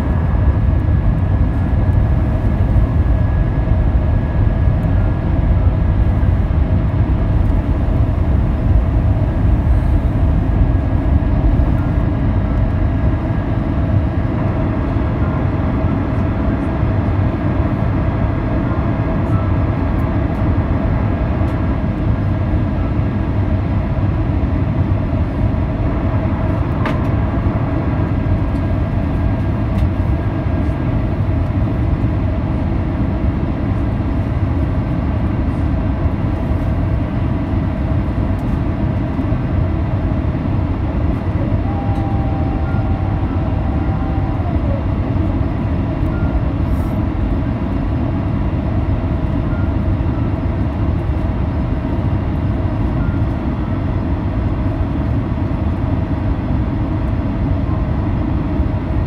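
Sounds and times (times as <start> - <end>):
aircraft cabin rumble: 0.0 - 59.0
short whine: 41.3 - 45.3.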